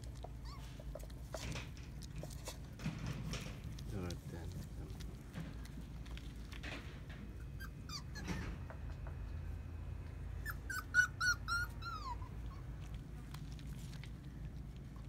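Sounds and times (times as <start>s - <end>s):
puppy yipping: 0.0s - 1.4s, 7.3s - 8.8s, 10.4s - 13.0s.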